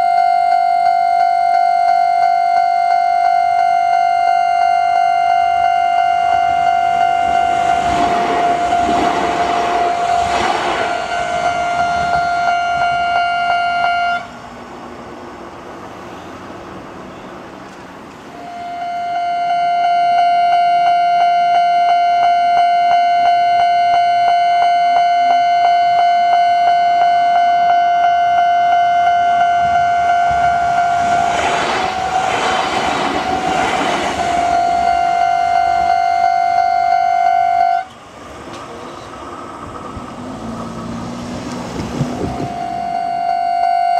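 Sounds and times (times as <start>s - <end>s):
train passing: 5.2s - 18.6s, 29.6s - 42.9s.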